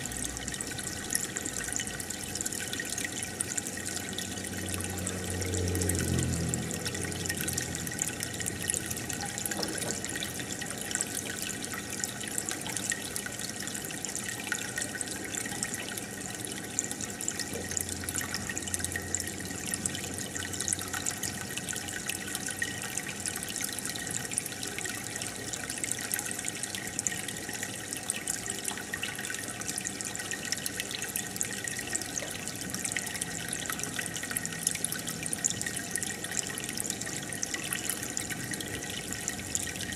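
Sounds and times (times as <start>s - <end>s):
aquarium water bubbling: 0.0s - 39.9s.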